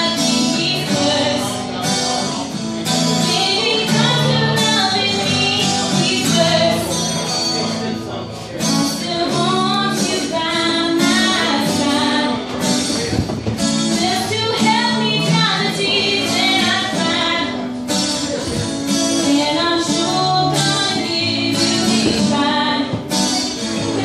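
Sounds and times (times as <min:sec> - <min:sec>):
woman singing into microphone: 0:00.0 - 0:02.2, 0:03.0 - 0:07.3, 0:08.6 - 0:24.0
acoustic guitar: 0:00.0 - 0:24.0.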